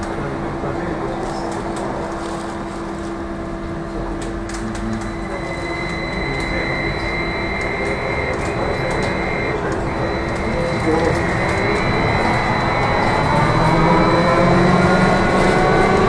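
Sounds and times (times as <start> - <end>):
electric drive hum: 0.0 - 16.0
high electric whine: 0.0 - 16.0.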